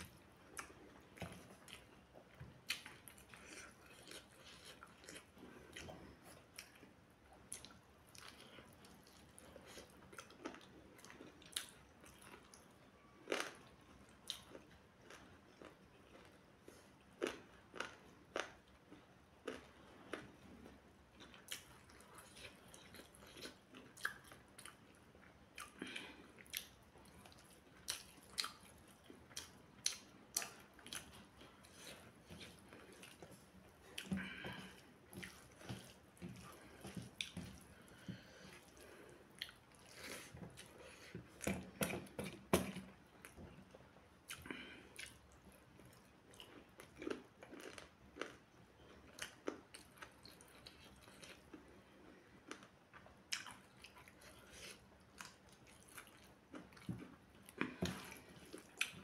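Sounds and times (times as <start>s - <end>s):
chewing: 0.0s - 59.0s.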